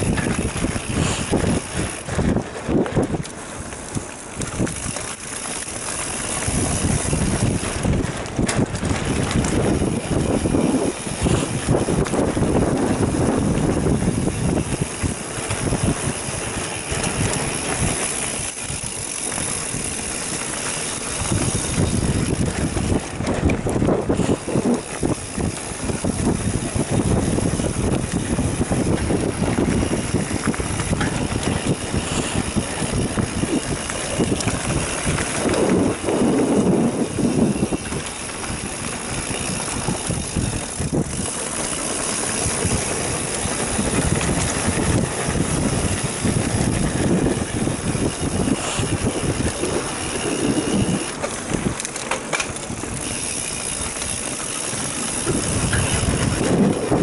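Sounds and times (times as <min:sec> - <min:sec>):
bike rattling over bumps: 0:00.0 - 0:57.0
bike tyres rolling over dirt: 0:00.0 - 0:57.0
wind noise on microphone: 0:00.0 - 0:57.0.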